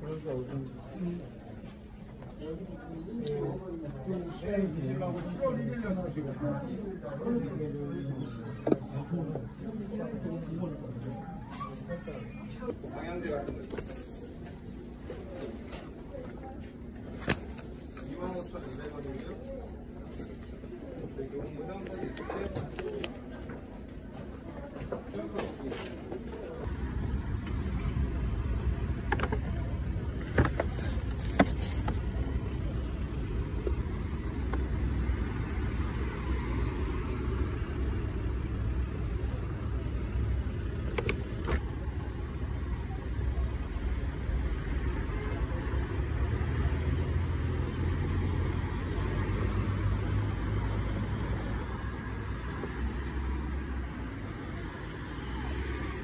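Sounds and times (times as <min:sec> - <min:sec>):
handling noises: 0:10.4 - 0:34.9, 0:40.7 - 0:42.4
road traffic rumble: 0:26.3 - 0:56.0.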